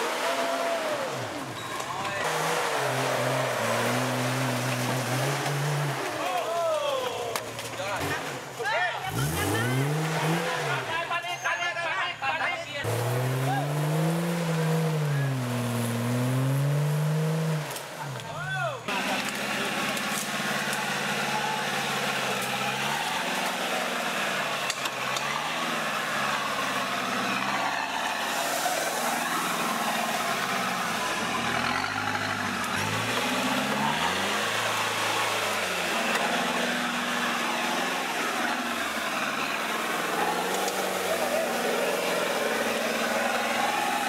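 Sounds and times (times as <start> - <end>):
truck engine revving: 0.0 - 6.5, 7.6 - 11.2, 12.8 - 44.0
noisy churn of mud: 18.9 - 44.0.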